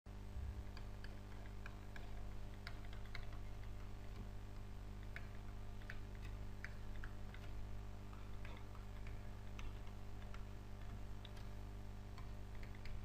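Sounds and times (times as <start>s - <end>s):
low electrical hum: 0.1s - 13.0s.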